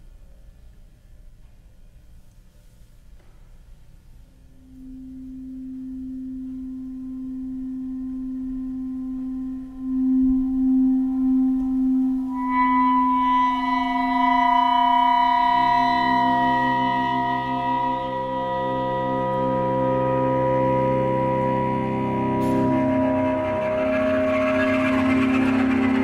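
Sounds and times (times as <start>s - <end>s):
chamber music sustained tones: 3.9s - 26.0s.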